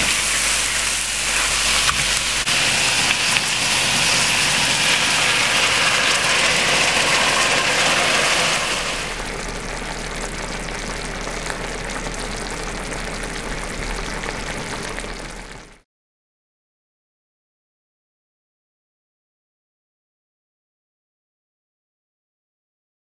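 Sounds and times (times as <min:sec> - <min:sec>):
food sizzling in a pot: 0:00.0 - 0:15.8.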